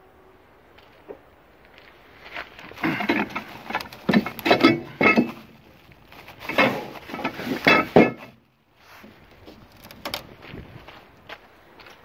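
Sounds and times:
plastic wrap rustling: 0:02.5 - 0:07.8
metal parts clinking and knocking: 0:02.8 - 0:05.6, 0:06.5 - 0:08.4.

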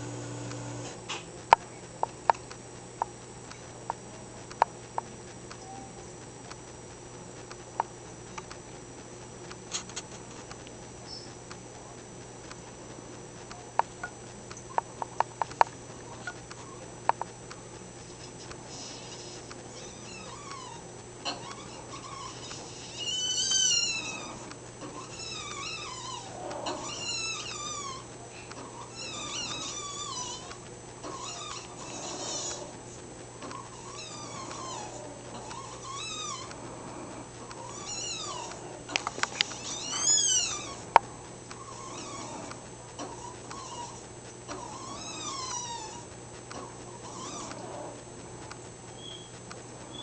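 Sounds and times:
macaw whining calls: 0:21.4 - 0:28.1, 0:28.9 - 0:30.5, 0:39.2 - 0:40.8, 0:48.9 - 0:50.0.

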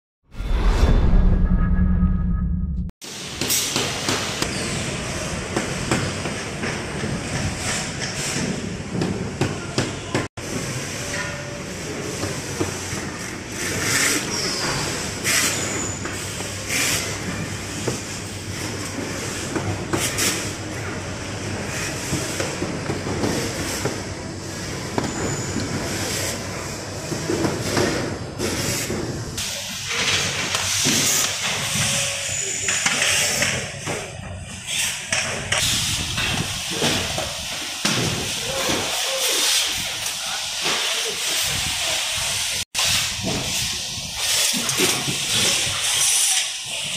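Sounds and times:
steady machine din: 0:00.4 - 0:02.9.

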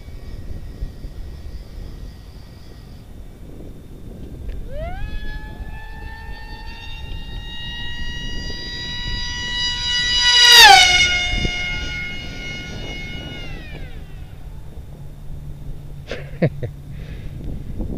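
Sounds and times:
model plane motor whine passing: 0:00.0 - 0:17.9.

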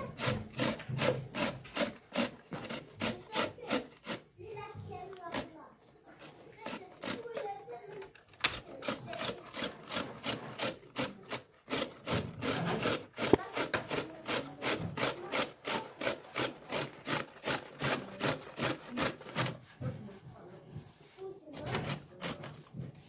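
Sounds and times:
beetroot rasping on metal grater: 0:00.0 - 0:05.6, 0:06.2 - 0:20.1, 0:21.5 - 0:22.9.

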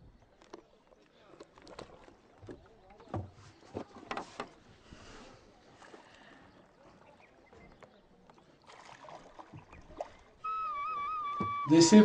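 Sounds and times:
paddle knocks and splashes: 0:00.4 - 0:04.7, 0:07.5 - 0:10.3, 0:11.3 - 0:11.8.

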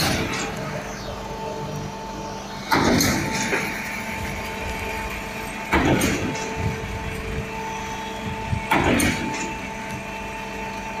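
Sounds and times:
loud pump clunk: 0:00.0 - 0:00.8, 0:02.6 - 0:04.6, 0:05.3 - 0:07.5, 0:08.2 - 0:10.1
concrete pump droning: 0:00.0 - 0:11.0.

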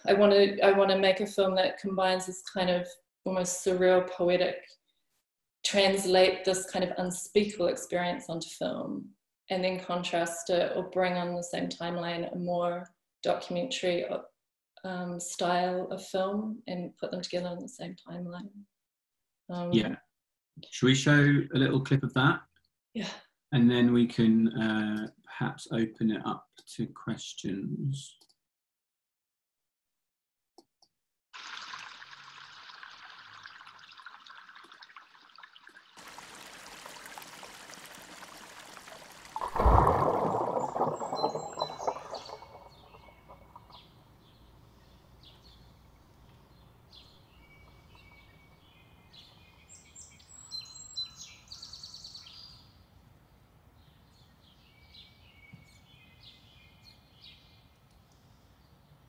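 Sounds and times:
rushing water-like noise: 0:36.0 - 0:43.6
small birds chirping: 0:40.7 - 0:52.8, 0:53.8 - 0:59.0.

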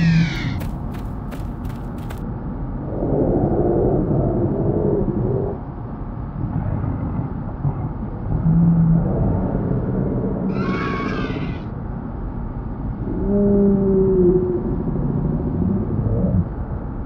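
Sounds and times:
high-pitched creature cry: 0:00.0 - 0:00.7, 0:10.5 - 0:11.7.

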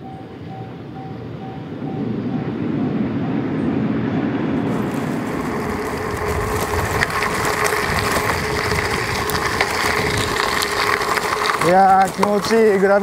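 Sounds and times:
bike tyres rolling on road: 0:02.0 - 0:13.0
tyres crunching over gravel: 0:04.6 - 0:13.0
stones clicking: 0:04.7 - 0:13.0.

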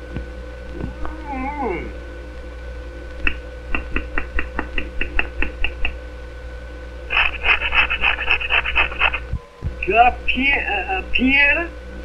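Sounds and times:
old film soundtrack hum: 0:00.0 - 0:12.0
cartoon foot tapping: 0:03.2 - 0:06.0.

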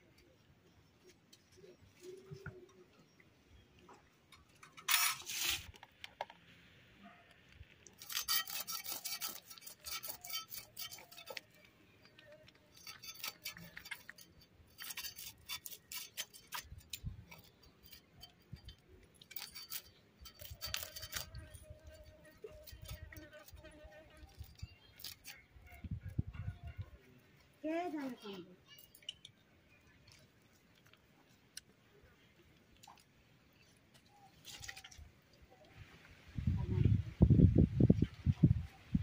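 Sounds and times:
fish scales scraped on blade: 0:04.8 - 0:05.8, 0:08.0 - 0:25.8.

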